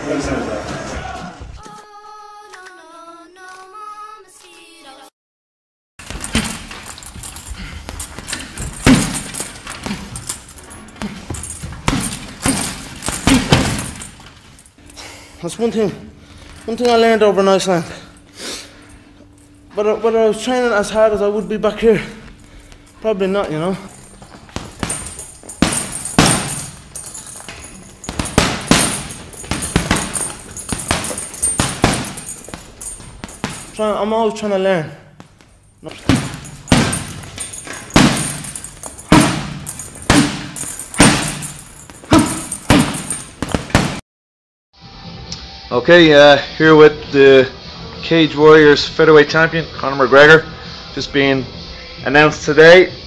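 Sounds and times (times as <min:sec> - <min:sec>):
gloved punches on heavy bag: 0:06.0 - 0:07.0, 0:07.6 - 0:10.4, 0:11.0 - 0:14.3, 0:24.0 - 0:33.9, 0:35.9 - 0:44.0.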